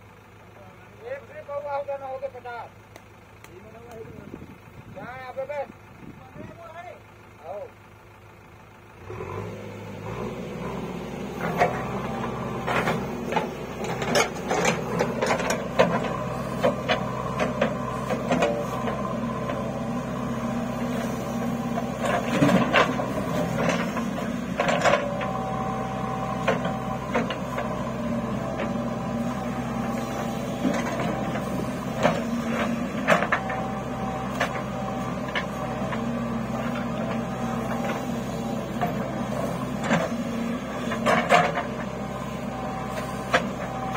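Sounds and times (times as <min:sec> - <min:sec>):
diesel engine under load: 0:00.0 - 0:43.9
backhoe bucket clanking: 0:11.3 - 0:43.9.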